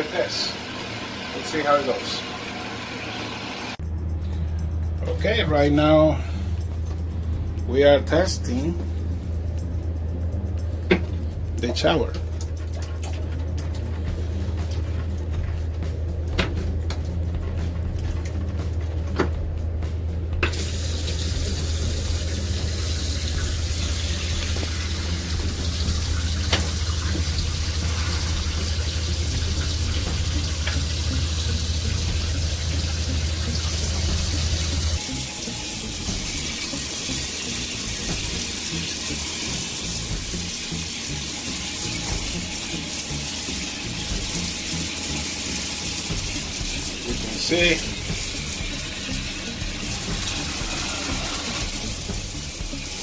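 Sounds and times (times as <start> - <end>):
low steady hum: 3.8 - 52.9
shower water spraying into tub: 20.5 - 53.0.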